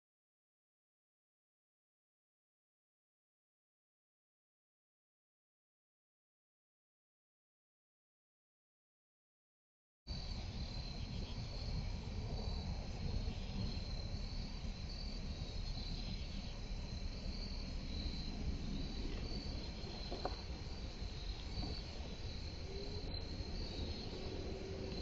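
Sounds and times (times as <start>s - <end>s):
crickets chirping: 10.1s - 25.0s
low background rumble: 10.1s - 25.0s.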